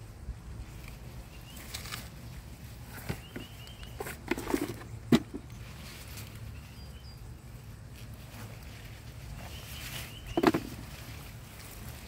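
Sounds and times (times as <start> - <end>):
hand digging through leaf mulch: 0.6 - 12.0
faint bird chirps: 2.9 - 4.2, 5.5 - 7.6, 9.3 - 10.9.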